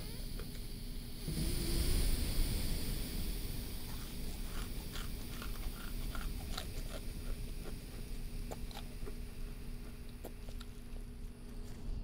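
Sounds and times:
steady low hum: 0:00.0 - 0:12.0
wet mouth clicks: 0:03.9 - 0:09.2.

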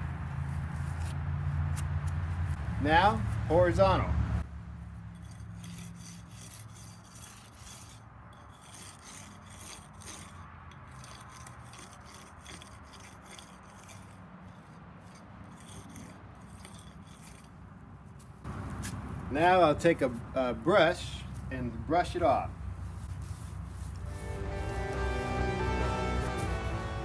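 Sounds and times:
brick jointer scraping mortar: 0:05.1 - 0:17.6.

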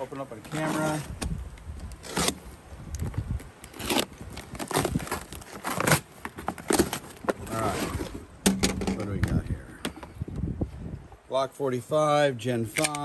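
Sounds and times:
cardboard box slit with cutter: 0:02.0 - 0:02.5.

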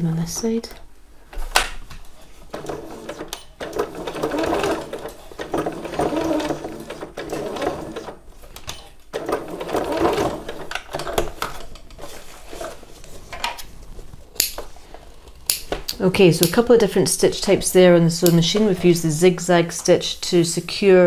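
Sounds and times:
sewing machine running: 0:02.5 - 0:08.2, 0:09.1 - 0:10.8.

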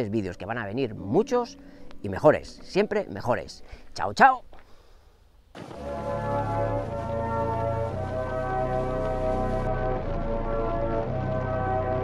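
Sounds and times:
music of held chords: 0:05.6 - 0:12.0.

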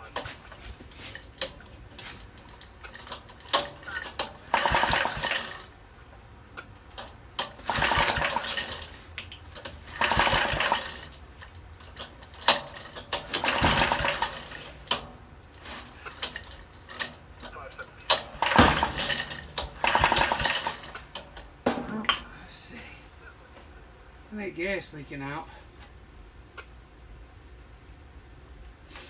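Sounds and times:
engine cranking on pull starter: 0:00.0 - 0:05.7, 0:06.9 - 0:21.5.

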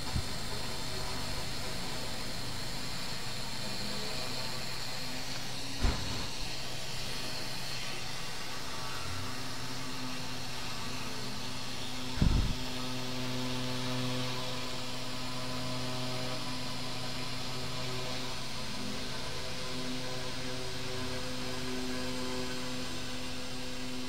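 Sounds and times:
spindle motor humming: 0:00.0 - 0:24.0
loud low thump: 0:12.2 - 0:12.5.

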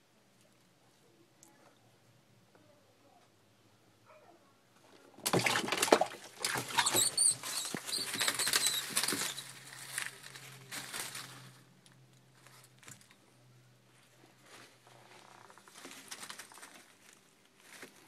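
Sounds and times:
rustling in dry leaf litter: 0:07.4 - 0:12.9, 0:14.4 - 0:18.0.

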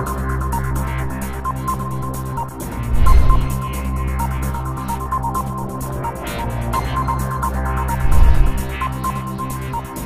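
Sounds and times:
electronic music with fast beat: 0:00.0 - 0:10.0
heavy bass boom: 0:02.9 - 0:03.7, 0:08.0 - 0:08.7.

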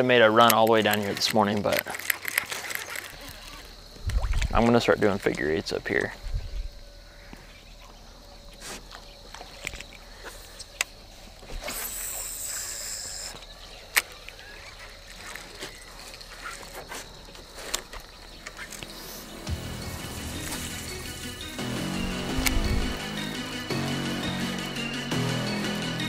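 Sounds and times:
fishing tackle clicks and knocks: 0:00.3 - 0:03.3
fishing reel spool whirring: 0:10.9 - 0:16.7, 0:18.5 - 0:25.2
music: 0:18.6 - 0:26.0.

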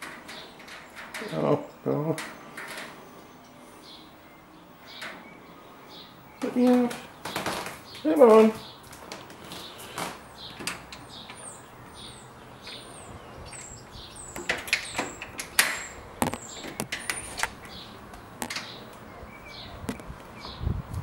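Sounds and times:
sharp clicks and knocks: 0:00.0 - 0:01.5, 0:02.1 - 0:03.0, 0:14.3 - 0:19.0
small birds chirping: 0:00.0 - 0:21.0.

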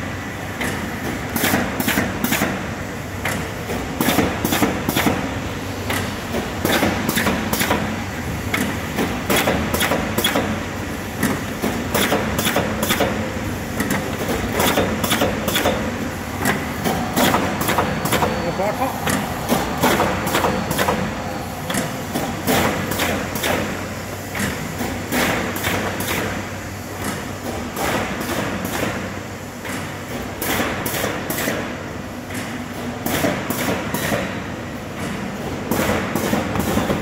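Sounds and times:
machine hum: 0:02.9 - 0:25.2.

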